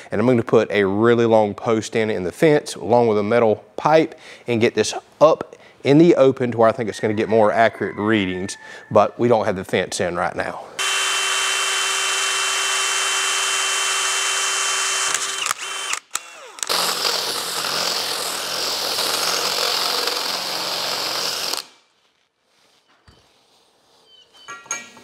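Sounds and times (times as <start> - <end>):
cordless drill boring metal: 10.8 - 21.7.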